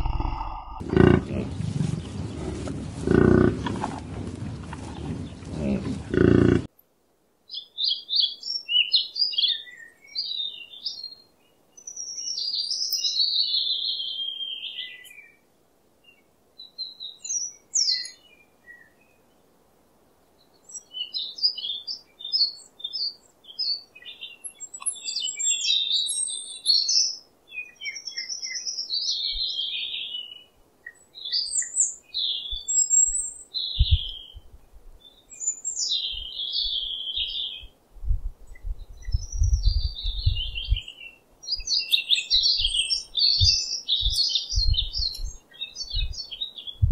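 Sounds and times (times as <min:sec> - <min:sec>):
sparrows chirping and chattering: 0:20.4 - 0:34.4, 0:35.0 - 0:37.7, 0:38.5 - 0:46.9.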